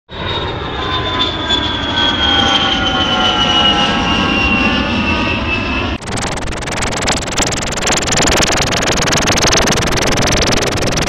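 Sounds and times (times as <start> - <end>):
jet engines rumbling and whining: 0.1 - 11.0.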